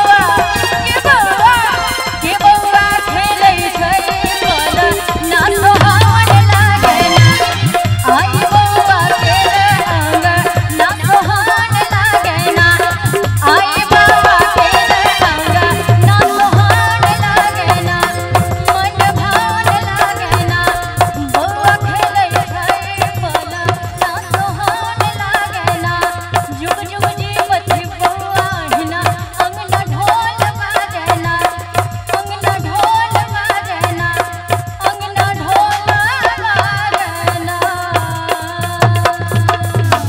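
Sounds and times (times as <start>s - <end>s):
hand drums beating: 0.0s - 40.0s.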